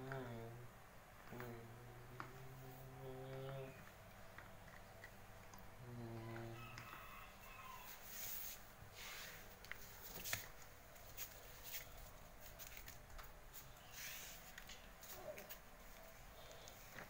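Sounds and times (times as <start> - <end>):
soft rustling: 7.0 - 17.0.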